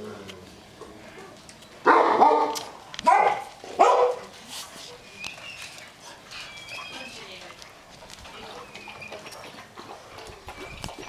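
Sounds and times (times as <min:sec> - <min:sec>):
dog barking: 0:01.8 - 0:04.3.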